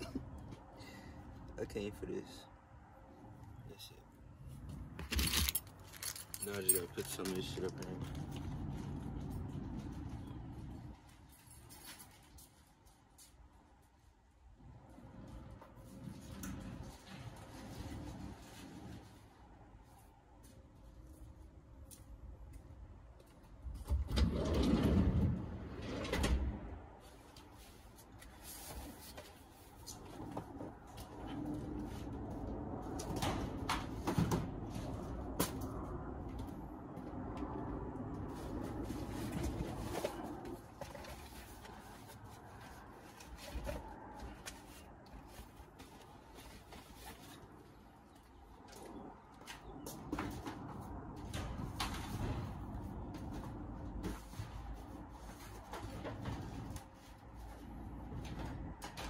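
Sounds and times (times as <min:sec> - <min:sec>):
outdoor background noise: 0:00.0 - 0:59.0
items being handled: 0:04.6 - 0:13.5, 0:38.2 - 0:59.0
handling rustling and knocking: 0:04.8 - 0:10.2.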